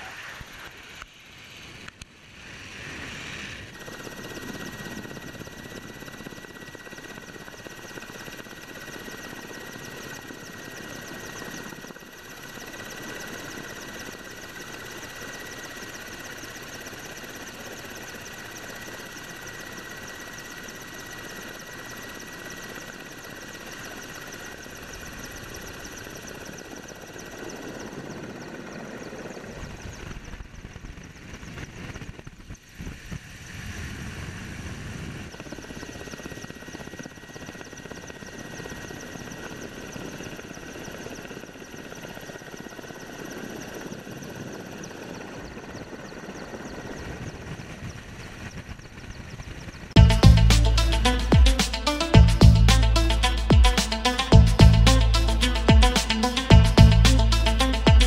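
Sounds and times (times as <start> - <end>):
plane engine and rushing air: 0.0 - 6.8, 29.0 - 36.4
helicopter turbine and rotor whine: 0.0 - 58.0.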